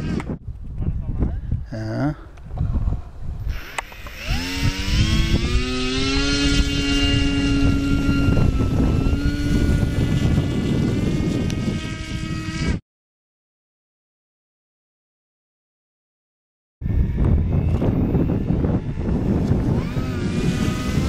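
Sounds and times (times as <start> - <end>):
model plane motor whining: 3.5 - 12.8, 16.8 - 21.0.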